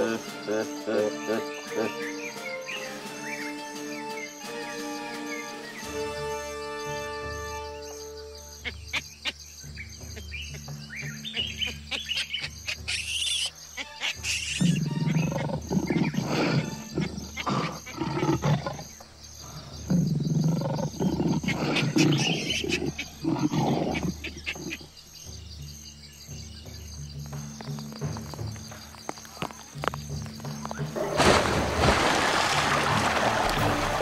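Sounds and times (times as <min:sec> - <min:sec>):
shrill animal calls: 0:11.3 - 0:24.9
lions growling and snarling: 0:14.6 - 0:24.9.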